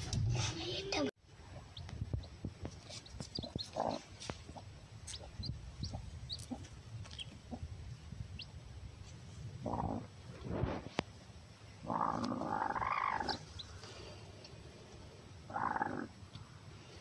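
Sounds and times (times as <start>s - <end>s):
hen clucking: 1.6s - 7.7s, 9.6s - 10.1s, 11.8s - 13.7s, 15.5s - 16.2s.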